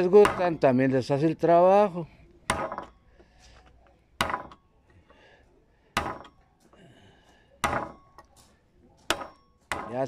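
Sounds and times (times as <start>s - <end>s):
hammer striking wood chisel: 0.1s - 0.6s, 2.5s - 3.0s, 4.2s - 4.6s, 6.0s - 6.4s, 7.6s - 8.1s.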